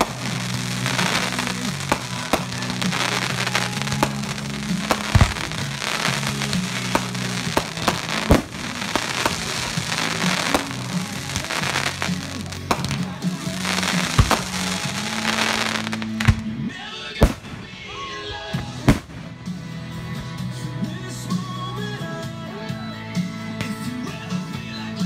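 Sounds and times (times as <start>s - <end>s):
firework crackle: 0.0s - 16.5s, 17.2s - 18.0s
firework bangs: 0.0s - 19.6s
music with low notes: 0.0s - 25.0s.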